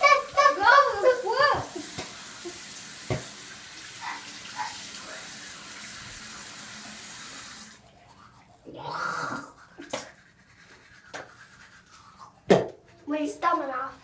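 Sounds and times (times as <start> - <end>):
sink tap running: 0.0 - 7.8.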